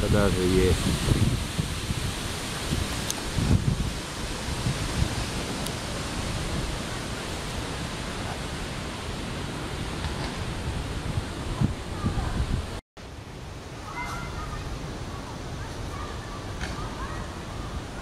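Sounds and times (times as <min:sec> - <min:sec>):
wind buffeting microphone: 0:00.0 - 0:12.8.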